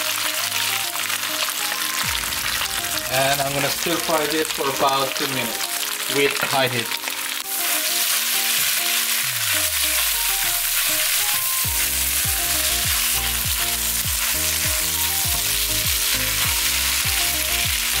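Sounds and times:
background music with a beat: 0.0s - 18.0s
food sizzling in a wok: 0.0s - 18.0s.

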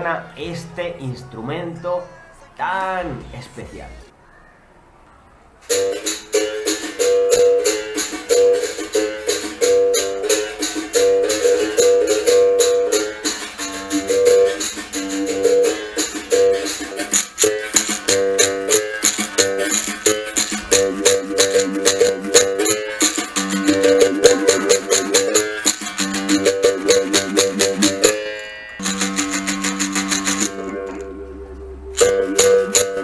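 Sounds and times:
berimbau played rhythmically: 5.7s - 33.0s
basket shaker rattling: 28.8s - 30.7s.

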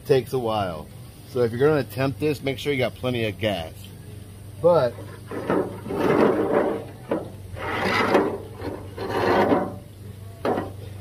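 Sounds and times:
metal spatula scraping griddle: 4.9s - 9.9s.

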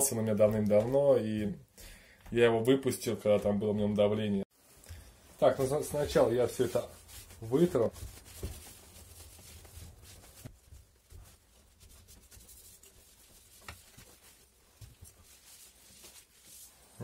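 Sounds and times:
cloth rubbing on metal: 4.5s - 17.0s.

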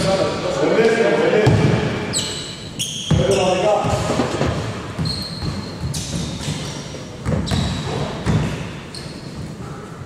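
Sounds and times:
basketball bouncing: 1.4s - 1.9s, 3.8s - 8.7s.

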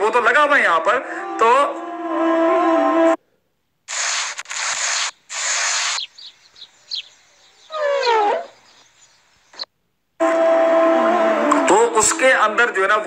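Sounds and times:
glass squeaks: 7.7s - 8.6s.

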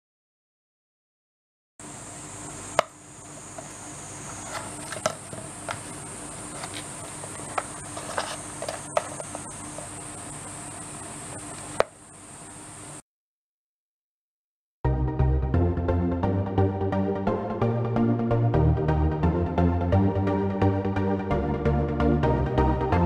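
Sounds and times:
steady high hiss: 1.8s - 13.0s.

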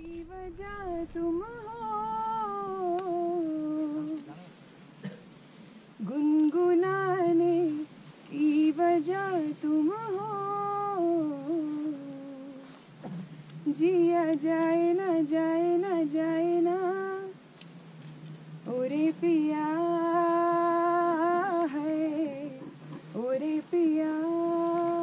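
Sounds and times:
woman singing unaccompanied: 0.0s - 4.6s, 6.0s - 13.0s, 13.6s - 17.7s, 18.6s - 25.0s.

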